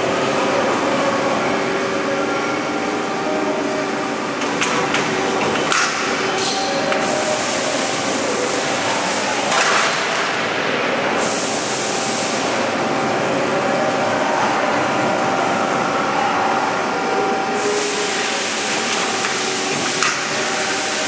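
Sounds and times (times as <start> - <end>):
loud hiss: 7.0 - 9.4, 11.2 - 12.6, 17.6 - 21.0.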